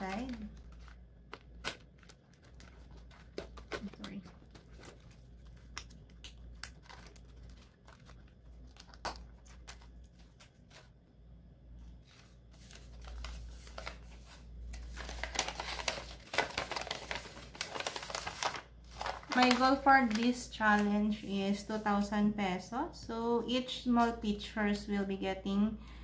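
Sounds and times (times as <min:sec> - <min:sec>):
paper crinkling: 0:00.0 - 0:11.0, 0:11.9 - 0:22.2.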